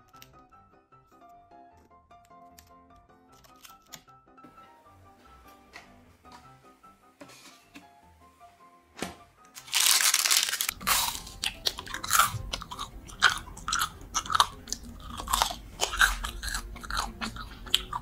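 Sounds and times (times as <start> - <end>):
freezer door opening: 8.9 - 9.8
crunching and chewing: 9.6 - 18.0.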